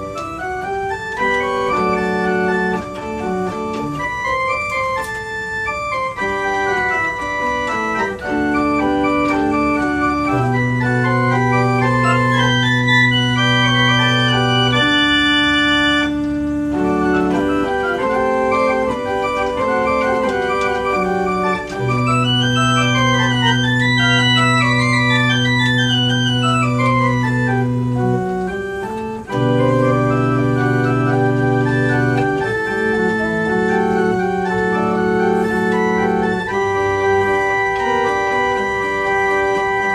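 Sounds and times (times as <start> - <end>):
pipe organ playing: 0.0 - 39.9.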